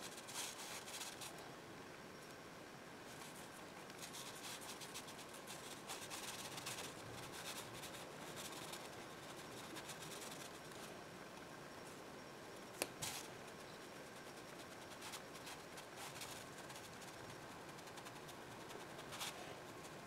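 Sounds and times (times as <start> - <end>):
brush scratching on paper: 3.1 - 10.6.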